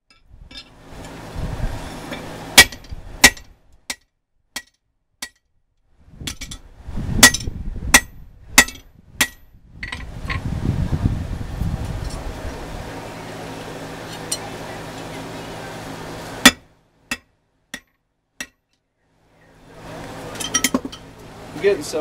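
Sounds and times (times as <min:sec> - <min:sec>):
hammer striking steel drift: 0:01.9 - 0:05.4, 0:06.2 - 0:10.4, 0:16.4 - 0:18.6.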